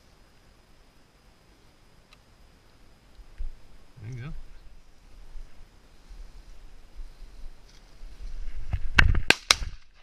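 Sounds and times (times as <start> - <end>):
rustling through dry grass: 3.2 - 10.0
shotgun shot: 9.2 - 9.8.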